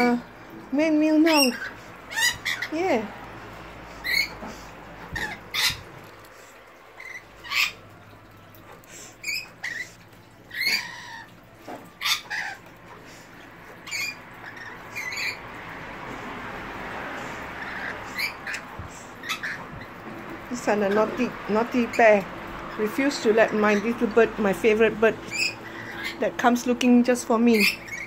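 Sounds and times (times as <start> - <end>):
parrots squawking shrilly: 1.3 - 6.2, 7.0 - 20.4, 25.2 - 26.2, 27.5 - 28.0.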